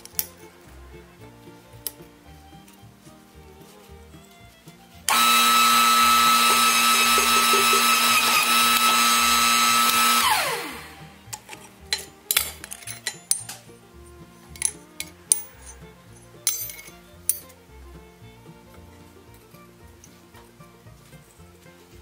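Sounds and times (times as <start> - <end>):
steel pieces clinking: 0.0 - 0.6, 1.8 - 2.8, 11.3 - 17.6
electric motor whine: 5.1 - 11.2.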